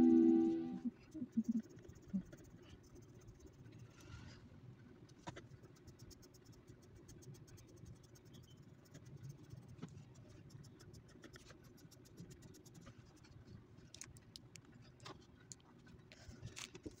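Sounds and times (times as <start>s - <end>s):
pencil scratching on paper: 1.0s - 4.1s, 5.3s - 13.4s.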